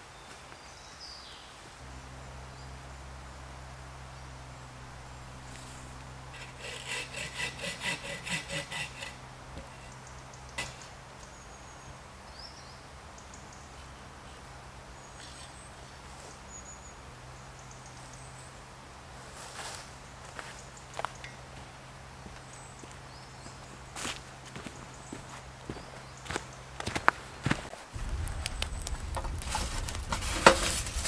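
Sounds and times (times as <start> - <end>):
low steady hum: 1.8 - 12.2, 28.0 - 31.0
rhythmic scraping strokes: 4.7 - 10.0, 28.0 - 31.0.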